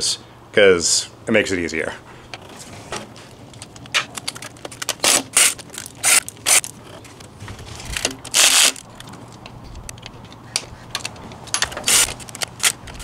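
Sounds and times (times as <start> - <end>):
wheelchair wheel scraping and clattering: 2.4 - 9.4.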